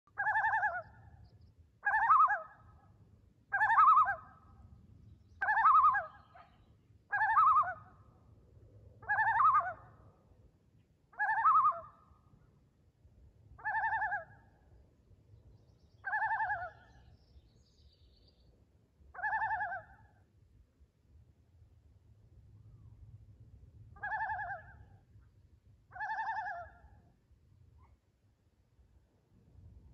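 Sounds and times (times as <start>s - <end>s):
loon tremolo calls: 0.1s - 1.2s, 1.8s - 2.8s, 3.5s - 4.5s, 5.4s - 8.0s, 9.0s - 10.0s, 11.1s - 12.1s, 13.6s - 14.5s, 16.0s - 17.2s, 19.2s - 20.2s, 24.0s - 25.0s, 25.9s - 26.9s.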